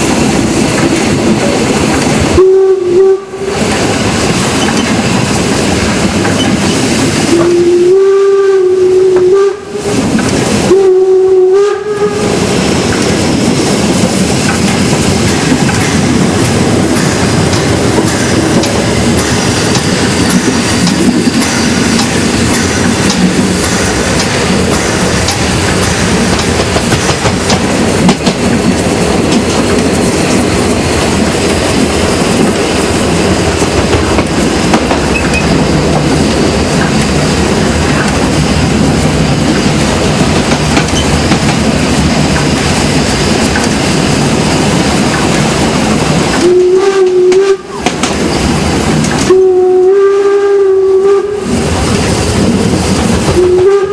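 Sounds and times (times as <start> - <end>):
train wheels rumbling on rails: 0.0 - 53.9
train whistle blasts: 2.3 - 3.7, 7.3 - 12.5, 46.4 - 47.9, 49.2 - 51.6, 53.3 - 53.9.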